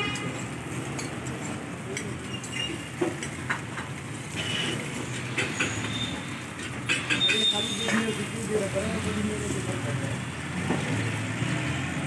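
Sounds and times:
metal tongs clicking on griddle: 0:00.9 - 0:04.0.

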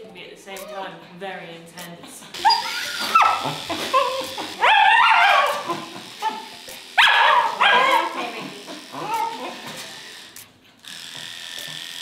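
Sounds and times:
dog barking high yelps: 0:02.4 - 0:06.4, 0:07.0 - 0:08.2.

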